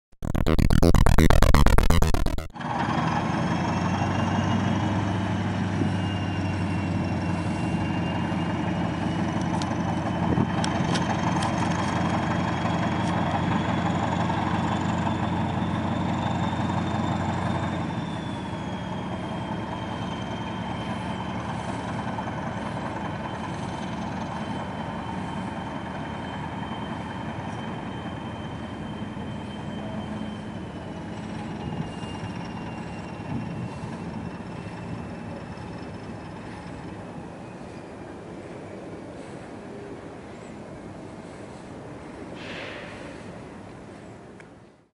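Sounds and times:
clicks: 0.1 - 2.5
diesel locomotive engine droning: 2.6 - 44.3.

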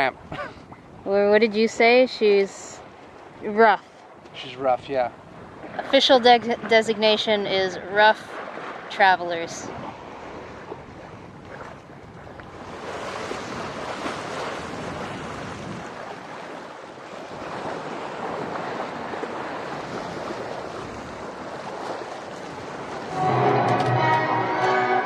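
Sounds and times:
water rushing past boat: 0.0 - 25.0
wind buffeting microphone: 4.7 - 24.2.

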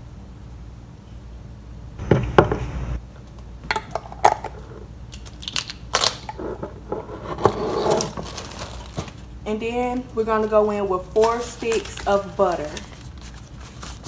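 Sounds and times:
plastic bag crinkling: 7.9 - 9.3, 10.4 - 14.0.

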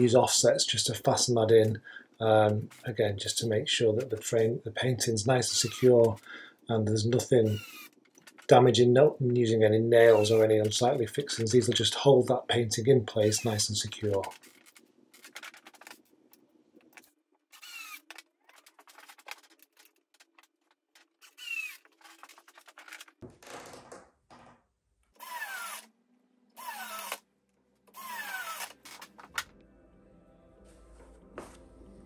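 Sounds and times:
power screwdriver whine: 7.5 - 7.9, 17.6 - 18.1, 21.2 - 21.9, 25.2 - 25.9, 26.6 - 27.2, 27.9 - 29.0.

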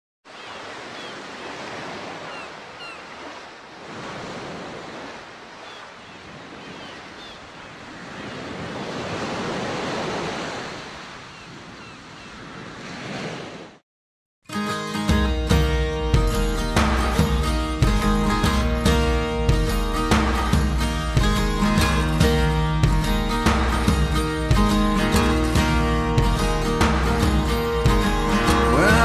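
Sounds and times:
ocean waves breaking: 0.3 - 13.8, 15.0 - 29.0.

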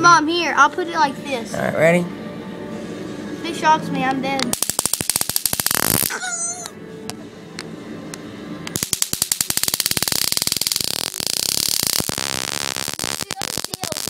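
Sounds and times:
stun gun arc crackling: 4.4 - 6.2, 8.7 - 14.0.

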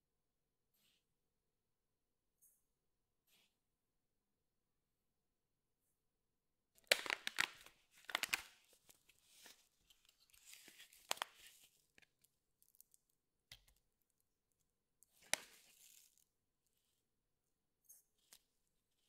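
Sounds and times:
plastic bag crinkling and tearing: 6.8 - 9.5.

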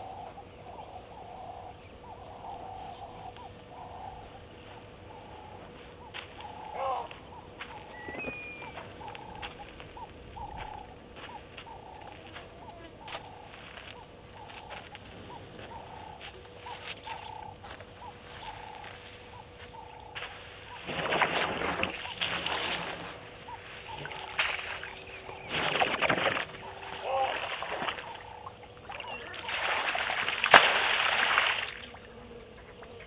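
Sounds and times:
bird calling: 0.0 - 33.0
elephant trunk splashing water: 25.5 - 28.2, 28.9 - 31.9.

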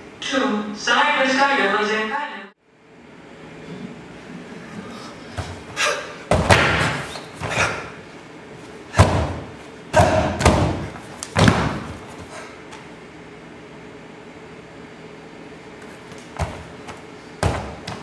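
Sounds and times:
heavy thuds and slams: 6.3 - 7.8, 8.9 - 12.3, 16.4 - 18.0.

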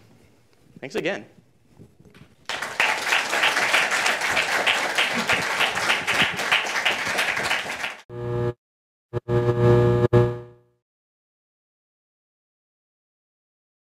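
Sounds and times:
audience applauding: 2.5 - 8.1.

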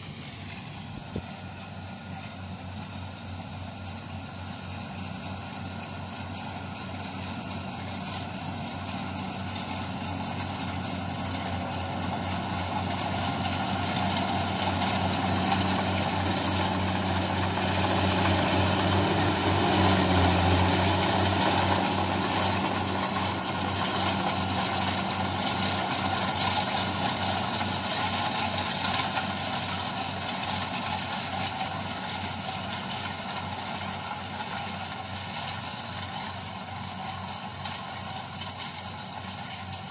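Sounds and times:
combine harvester diesel engine hum: 0.0 - 39.9.

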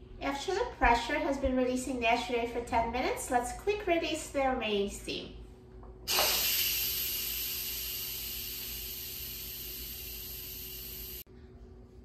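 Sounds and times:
pressure cooker steam hissing: 6.1 - 11.2.

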